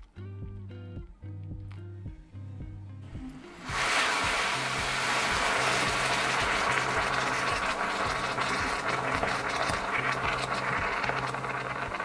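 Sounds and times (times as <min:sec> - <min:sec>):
background music with bass line: 0:00.0 - 0:12.0
liquid swirling with small clicks: 0:06.5 - 0:12.0.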